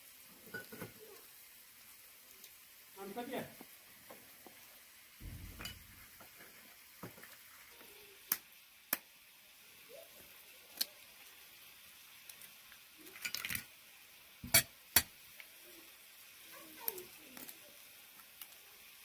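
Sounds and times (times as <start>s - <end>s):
eggshells crackling: 10.1s - 13.8s.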